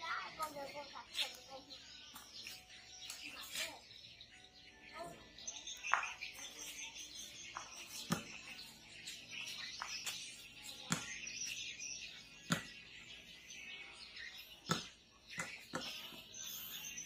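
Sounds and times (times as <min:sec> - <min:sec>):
ball bouncing on concrete: 0:02.1 - 0:03.6, 0:05.7 - 0:16.6.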